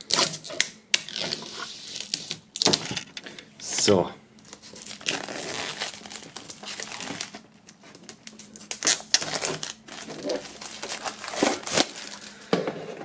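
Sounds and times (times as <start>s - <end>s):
plastic film crinkling: 4.4s - 12.5s.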